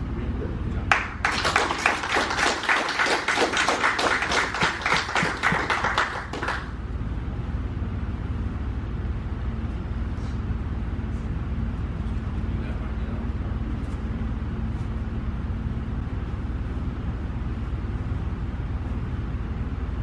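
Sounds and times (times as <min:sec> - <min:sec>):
low steady hum: 0:00.0 - 0:20.0
people clapping: 0:00.9 - 0:06.8.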